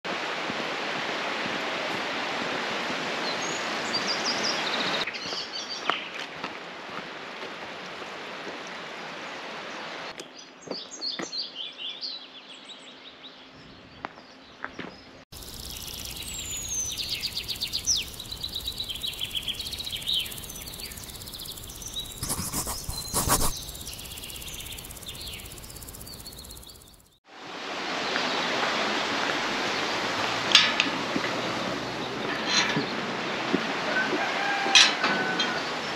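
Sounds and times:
small birds singing and chirping: 10.4 - 27.2
stream rushing: 27.3 - 30.5.

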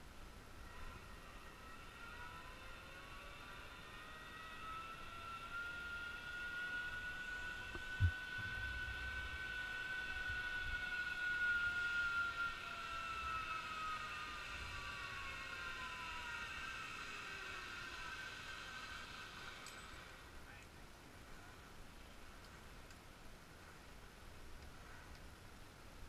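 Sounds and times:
zipline pulleys whining: 0.0 - 20.7.

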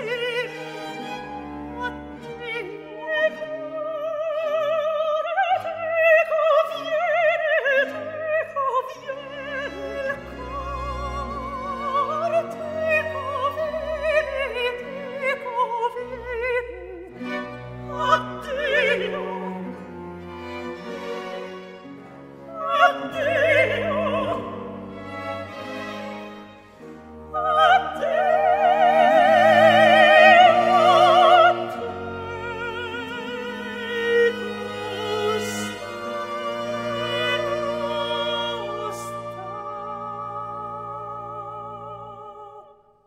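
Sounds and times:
orchestra with strings: 0.0 - 42.6
operatic voice singing: 22.4 - 25.0, 27.3 - 42.8.

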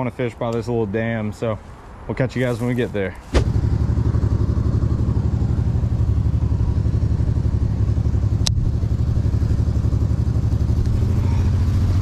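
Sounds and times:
car engine idling: 3.4 - 12.0.

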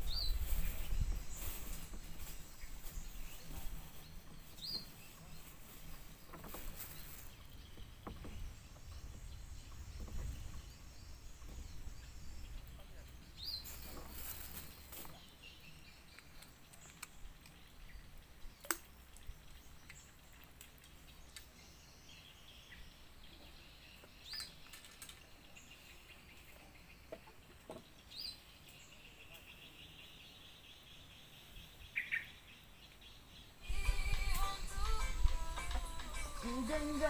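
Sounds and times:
bird chirping: 0.0 - 37.0
small sharp clicks: 18.6 - 19.3.

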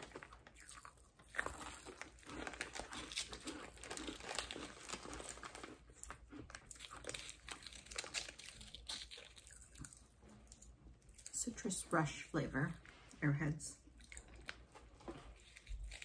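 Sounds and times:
plastic candy wrapper crinkling: 0.0 - 10.7, 14.0 - 16.0
crunchy chewing: 0.0 - 11.4, 14.0 - 16.0.

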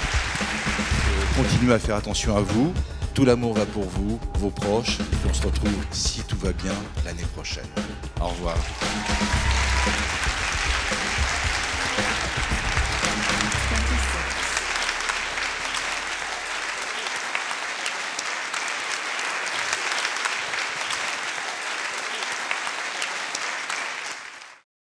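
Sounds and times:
audience applauding: 0.0 - 1.8, 8.3 - 24.6
music with low bass: 0.0 - 16.5.

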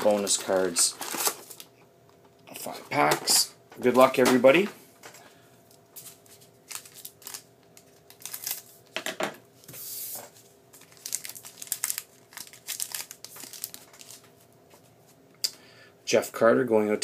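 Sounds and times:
foil pack crinkling: 0.0 - 1.7, 6.0 - 9.0, 10.7 - 14.4
foil pack tearing open: 6.6 - 7.5, 8.1 - 8.7, 10.8 - 14.2.

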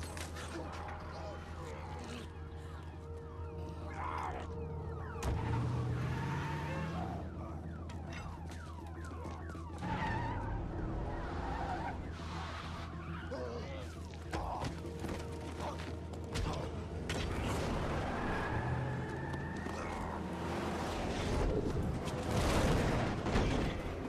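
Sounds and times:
rising siren-like tone: 0.3 - 14.3, 17.6 - 22.0.

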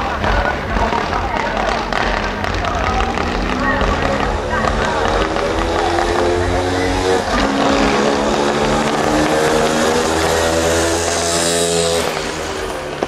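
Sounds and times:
fireworks crackling: 0.0 - 13.0
fireworks hissing rush: 0.0 - 13.0.

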